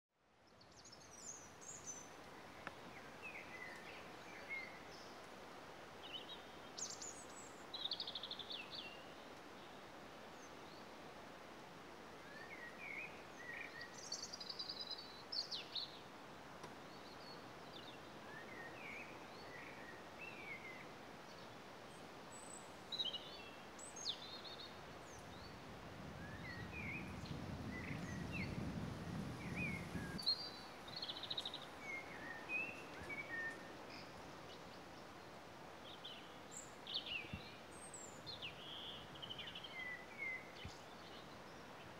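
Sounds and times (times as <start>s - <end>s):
faint steady hiss: 0.2s - 41.9s
songbirds chirping and trilling: 12.3s - 41.9s.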